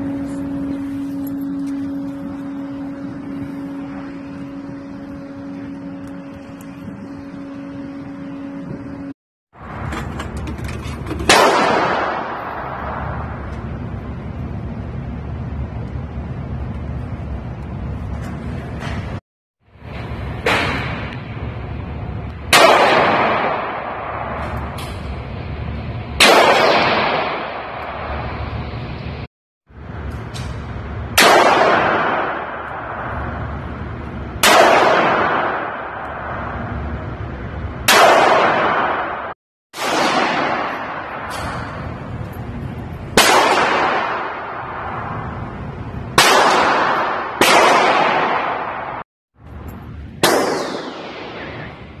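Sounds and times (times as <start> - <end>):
gunshots echoing indoors: 11.3 - 13.5, 22.5 - 25.1, 26.2 - 28.3, 31.1 - 33.8, 34.4 - 36.9, 37.8 - 42.1, 43.1 - 49.0, 50.2 - 51.9.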